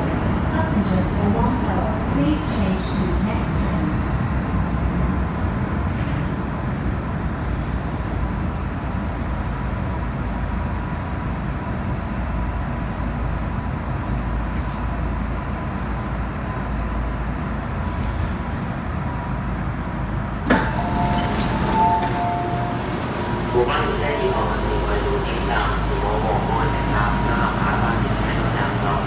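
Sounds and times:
train running with whine: 0:00.0 - 0:29.0
train doors clunking open: 0:20.4 - 0:29.0
steady tones: 0:20.5 - 0:29.0.

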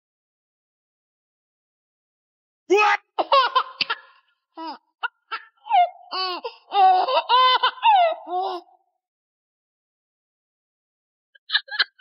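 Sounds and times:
high-pitched laughter: 0:06.8 - 0:08.6, 0:11.4 - 0:12.0.

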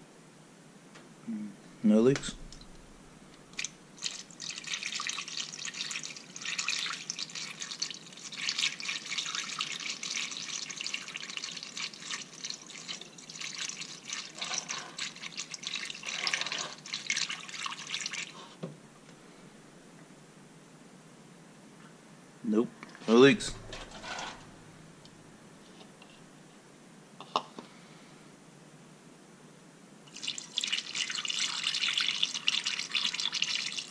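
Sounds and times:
liquid pouring through funnel: 0:02.4 - 0:18.6, 0:30.1 - 0:33.9.

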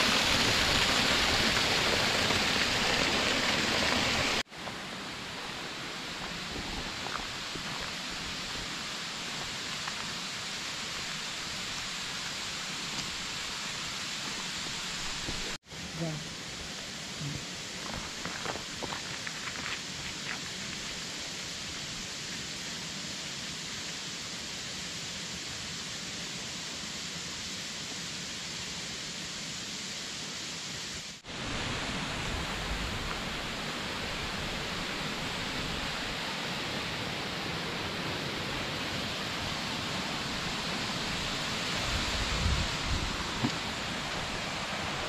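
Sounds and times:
waterfall rushing: 0:00.0 - 0:18.0, 0:30.5 - 0:45.0.

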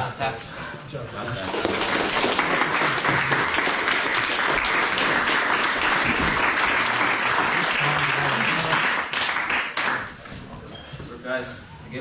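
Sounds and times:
audience clapping: 0:01.4 - 0:10.3.

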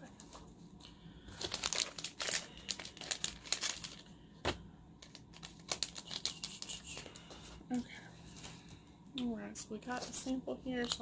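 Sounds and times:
packaging crinkling: 0:01.2 - 0:04.1, 0:05.0 - 0:07.3.

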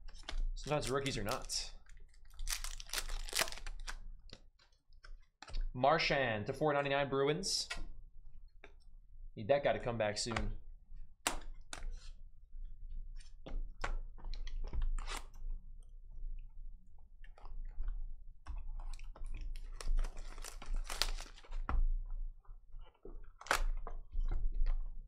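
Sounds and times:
shrink-wrap and cardboard crinkling: 0:00.1 - 0:04.0, 0:19.5 - 0:21.7.

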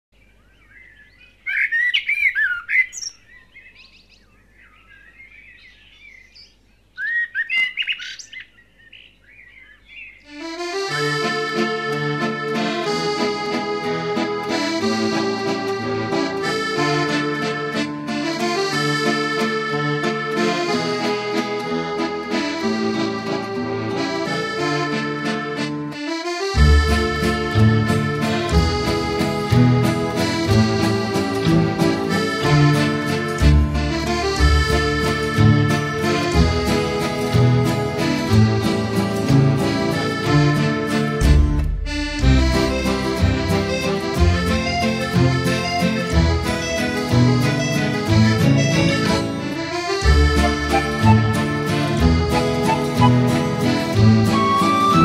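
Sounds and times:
birds chirping and singing: 0:00.2 - 0:10.7
instrumental background music: 0:10.3 - 0:55.0.

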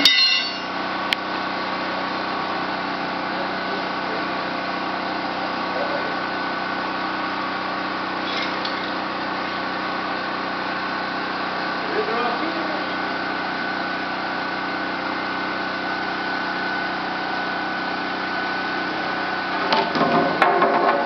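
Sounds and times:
small engine running steadily: 0:00.0 - 0:21.0.

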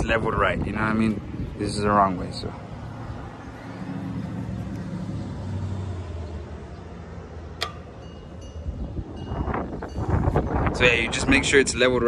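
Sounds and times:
passing vehicle engine hum: 0:01.1 - 0:10.7.

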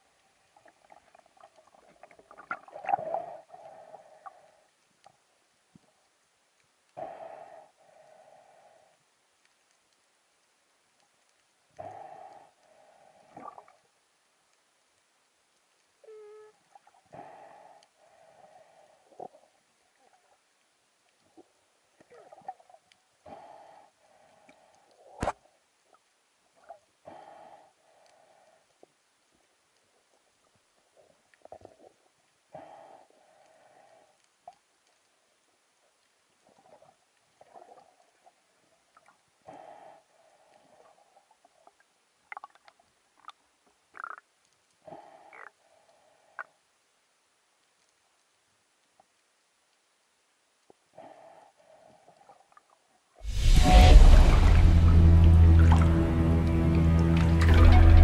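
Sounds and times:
low underwater hum: 0:00.0 - 0:58.0
muffled rushing water: 0:53.2 - 0:58.0.

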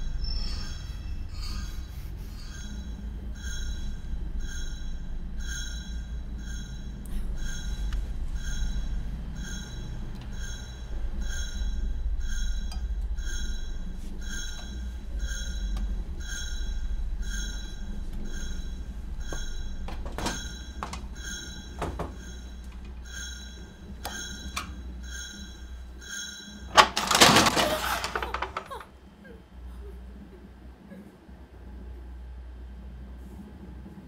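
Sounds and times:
deep drone: 0:00.0 - 0:27.2
soft high bell-like tone: 0:00.1 - 0:26.7.

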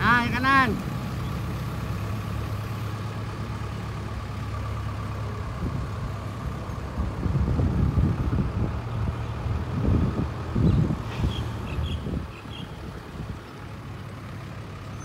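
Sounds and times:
distant diesel engine running: 0:00.0 - 0:15.0
wind buffeting microphone: 0:05.5 - 0:13.5.

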